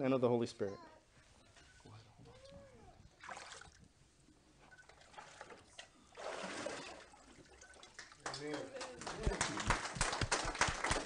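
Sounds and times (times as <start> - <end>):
water splashing in a tank: 3.1 - 3.9, 4.7 - 8.2.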